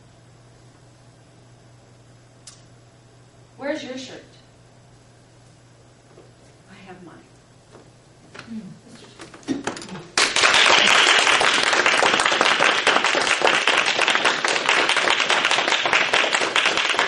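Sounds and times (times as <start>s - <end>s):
audience applauding: 10.1s - 17.0s.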